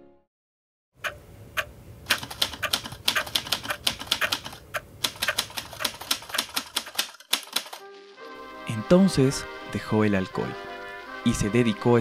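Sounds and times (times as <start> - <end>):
manual typewriter key strikes: 2.1 - 7.8.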